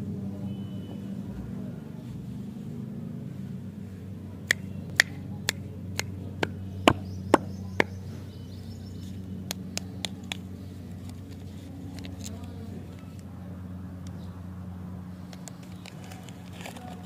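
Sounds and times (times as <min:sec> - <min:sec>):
steady low hum: 0:00.0 - 0:17.0
sharp taps: 0:04.5 - 0:08.0.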